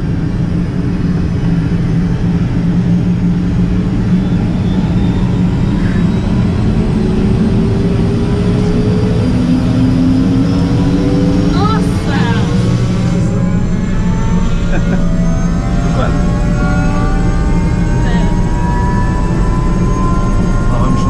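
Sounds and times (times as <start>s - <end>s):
helicopter engine and rotor running: 0.0s - 21.0s
thin rising engine whine: 0.0s - 21.0s.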